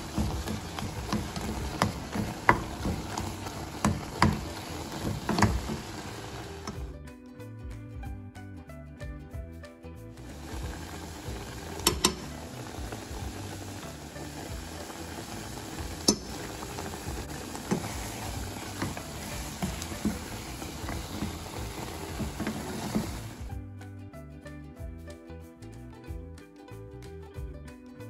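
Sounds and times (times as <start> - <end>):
sauce bubbling and popping: 0.0 - 6.9, 10.2 - 23.6.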